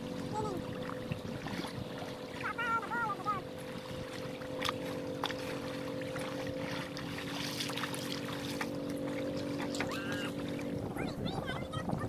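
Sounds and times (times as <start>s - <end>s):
steady low hum: 0.0s - 12.0s
small clicks and splashes: 3.6s - 10.9s.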